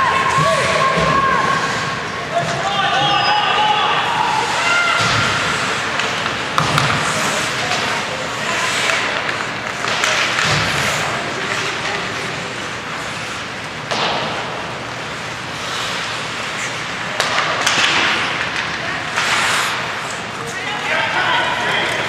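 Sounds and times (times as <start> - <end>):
skate blades scraping ice: 4.1 - 20.9
stick and puck knocks: 17.2 - 19.3.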